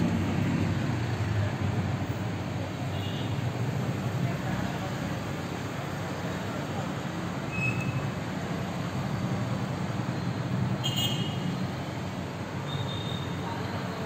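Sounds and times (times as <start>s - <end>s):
low rumble of city traffic: 0.0s - 14.0s.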